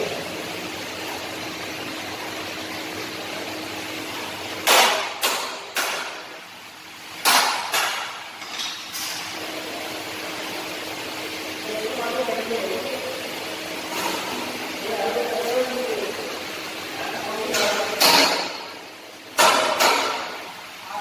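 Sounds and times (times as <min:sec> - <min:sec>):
steady background hum: 0:00.0 - 0:21.0.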